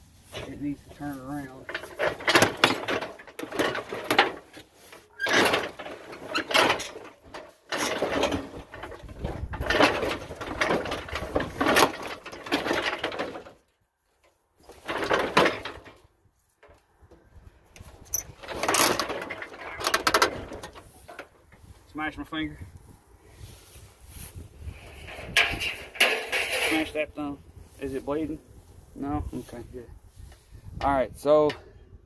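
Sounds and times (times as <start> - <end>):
metal clanking and scraping: 0.2 - 16.8, 17.8 - 21.7, 23.4 - 28.4.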